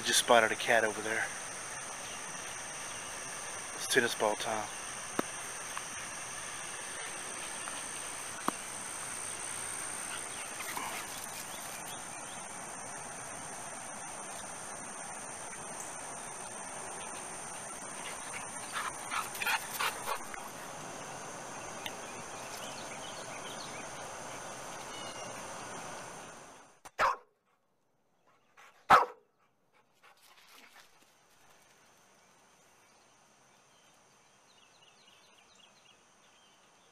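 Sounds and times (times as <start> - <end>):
insects droning: 0.0 - 27.2, 29.8 - 36.9
dog barking: 27.0 - 27.3, 28.9 - 29.3.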